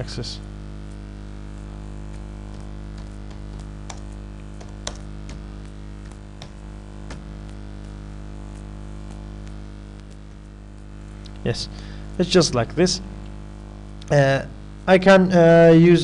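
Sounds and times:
steady hum: 0.0 - 16.0
keyboard keystrokes: 2.5 - 5.4.

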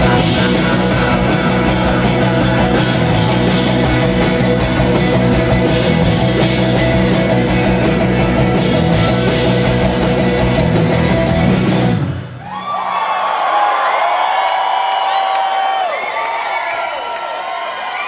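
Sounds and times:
bass guitar: 0.0 - 12.4
electric guitars: 0.0 - 12.4
drums: 0.0 - 13.4.

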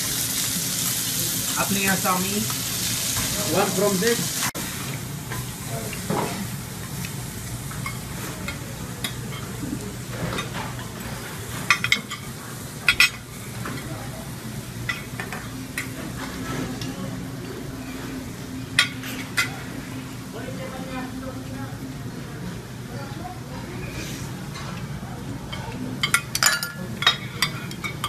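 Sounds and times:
meat sizzling on griddle: 0.0 - 8.9.

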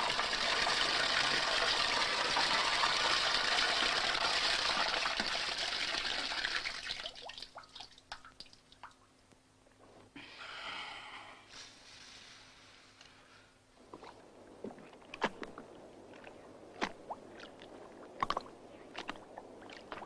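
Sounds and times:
water gushing into glass tank: 0.0 - 8.8
drips and small splashes: 0.0 - 9.4, 13.9 - 20.0
faint steady hum: 0.0 - 20.0.

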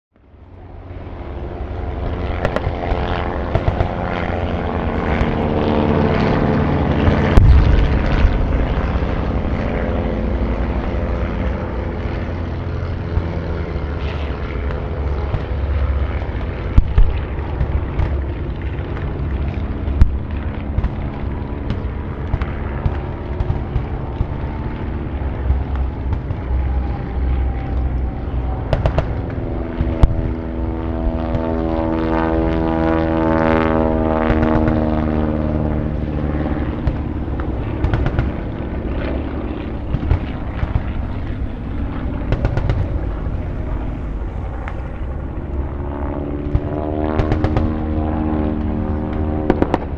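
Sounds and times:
propeller aircraft engines droning: 0.2 - 49.9
explosion thumps: 7.1 - 9.2
gunfire cracks: 7.3 - 8.9, 49.5 - 49.9.

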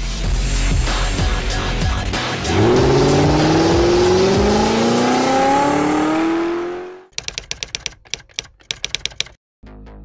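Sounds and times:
car engine revving: 2.4 - 7.1
typewriter key clacks: 7.1 - 9.4.

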